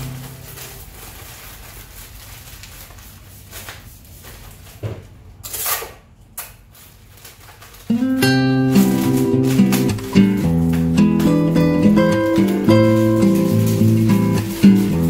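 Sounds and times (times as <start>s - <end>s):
guitar music: 0.0s - 0.8s, 7.9s - 15.0s
paper wrap rasp: 0.0s - 4.8s, 6.7s - 15.0s
paper rustling: 0.0s - 5.1s, 6.7s - 15.0s.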